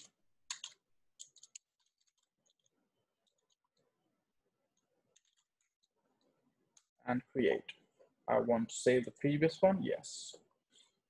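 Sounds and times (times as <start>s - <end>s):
computer keyboard keystrokes: 0.5s - 1.6s.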